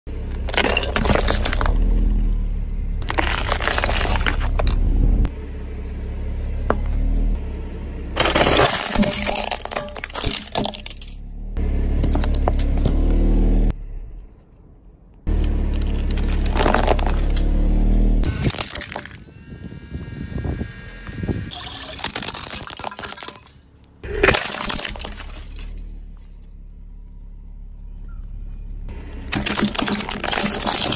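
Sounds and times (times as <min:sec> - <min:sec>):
car engine rumbling: 0:00.1 - 0:21.6, 0:23.4 - 0:30.9
plastic toy crunching: 0:00.4 - 0:01.8, 0:03.0 - 0:04.8, 0:08.2 - 0:11.2, 0:15.7 - 0:17.3, 0:20.8 - 0:25.8, 0:29.3 - 0:30.9
breaking plastic cracking: 0:00.5 - 0:01.8, 0:03.0 - 0:04.8, 0:08.2 - 0:11.2, 0:15.7 - 0:17.4, 0:21.8 - 0:23.6, 0:24.2 - 0:25.8, 0:29.3 - 0:30.9.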